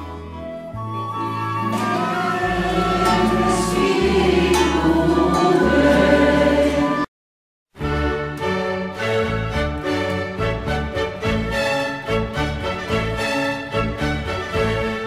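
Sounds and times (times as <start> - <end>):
instrumental backing with bass notes: 0.0 - 7.1, 7.8 - 15.0
choir singing: 1.2 - 7.1.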